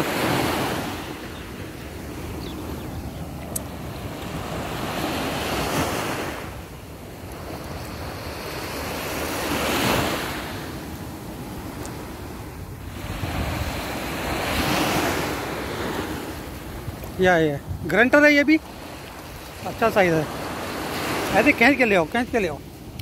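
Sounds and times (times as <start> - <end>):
surf washing up a beach: 0.0 - 23.0
wind buffeting microphone: 16.6 - 18.0.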